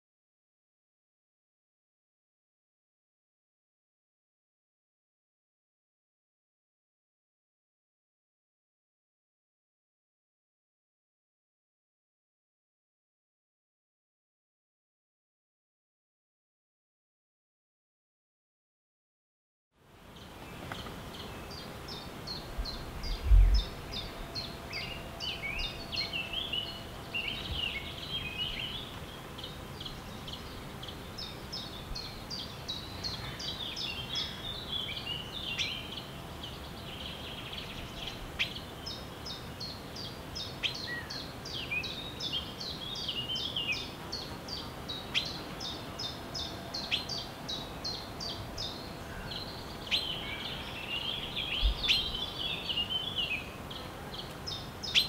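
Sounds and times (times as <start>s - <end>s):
songbirds singing and chirping: 19.8s - 55.0s
steady background hiss: 19.8s - 55.0s.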